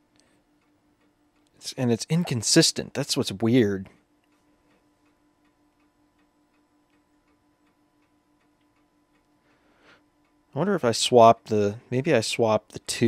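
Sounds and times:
faint rapid pulsing hum: 0.0s - 13.0s
faint ticks: 3.9s - 9.6s.

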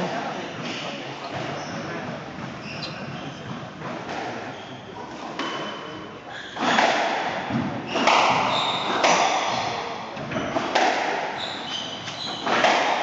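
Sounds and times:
squash ball hitting rackets and walls: 0.7s - 13.0s.

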